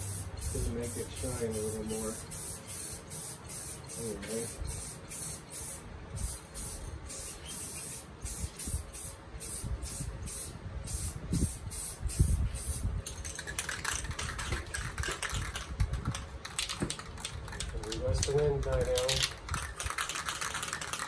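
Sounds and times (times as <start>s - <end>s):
aerosol spray can hissing: 0.0s - 12.9s
spray can mixing ball rattling: 0.1s - 21.0s.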